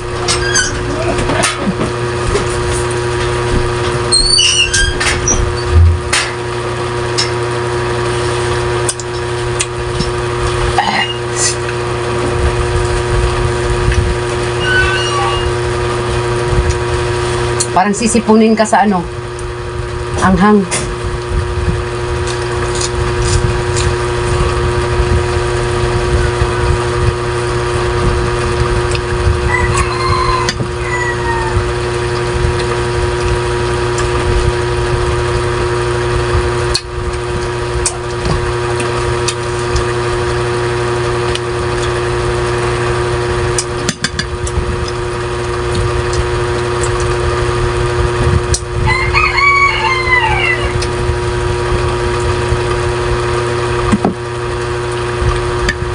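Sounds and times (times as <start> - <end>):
mechanical hum: 0.0 - 55.9
rooster crowing: 14.6 - 15.6, 29.4 - 32.1, 48.8 - 50.9.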